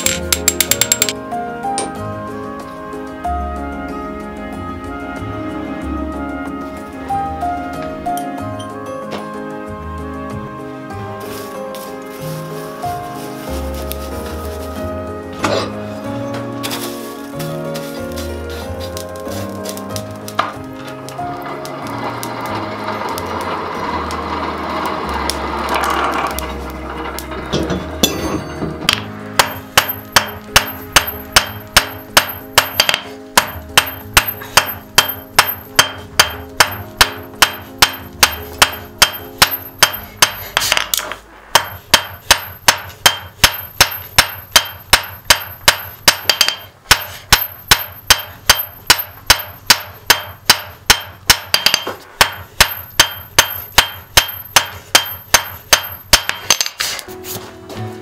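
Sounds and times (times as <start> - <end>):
hammer striking iron on anvil: 0.0 - 1.2, 1.8 - 2.0, 26.3 - 56.8.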